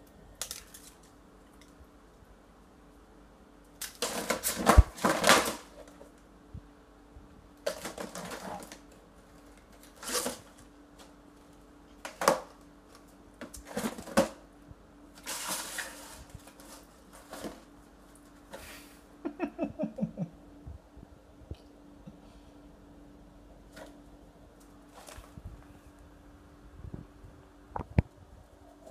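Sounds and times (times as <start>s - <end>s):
kitten scratching and rustling: 7.7s - 11.6s.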